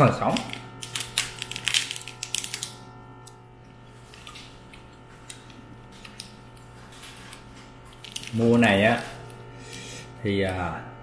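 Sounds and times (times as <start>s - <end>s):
crab shell cracking: 0.3s - 3.4s, 8.0s - 9.4s.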